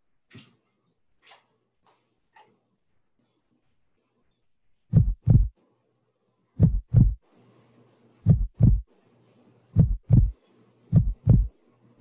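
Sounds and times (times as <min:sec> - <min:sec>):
faint steady hum: 0:02.8 - 0:12.0
heartbeat thumps: 0:04.9 - 0:05.5, 0:06.6 - 0:07.2, 0:08.2 - 0:08.8, 0:09.8 - 0:11.5.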